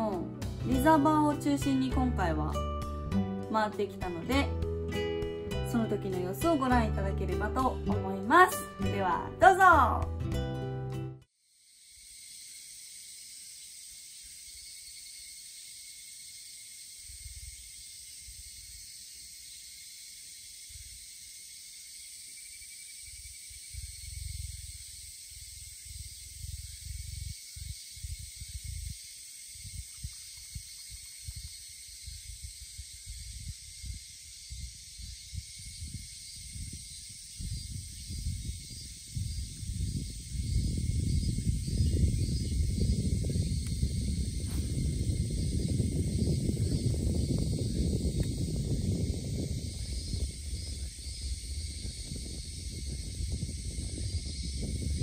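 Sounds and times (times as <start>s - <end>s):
cicada chorus drone: 11.6s - 55.0s
wind buffeting microphone: 23.7s - 55.0s.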